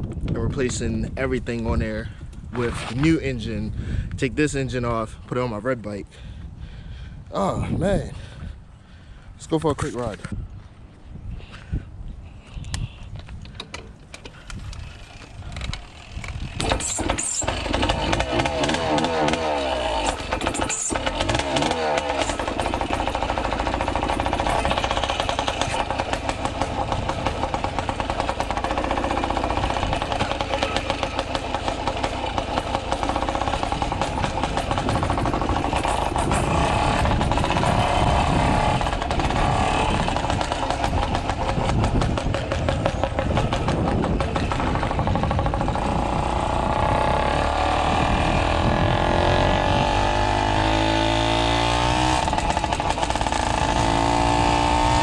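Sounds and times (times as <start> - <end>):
two-stroke engine putting: 12.7 - 55.0.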